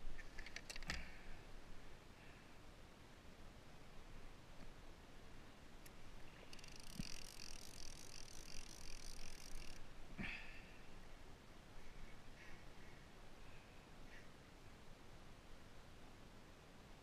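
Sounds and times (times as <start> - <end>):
wind and sea hiss: 0.8 - 17.0
fishing reel clicking: 6.5 - 9.8.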